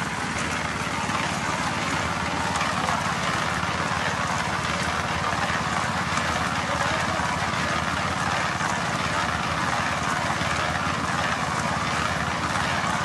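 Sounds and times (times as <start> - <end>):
concrete mixer running: 0.0 - 13.0.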